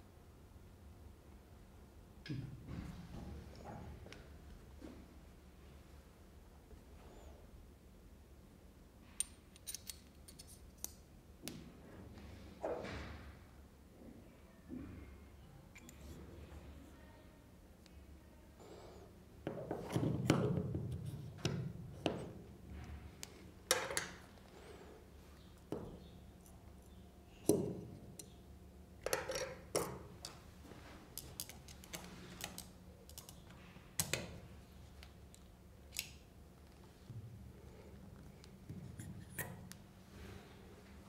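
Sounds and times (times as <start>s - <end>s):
small metal parts clicking: 9.2s - 11.0s.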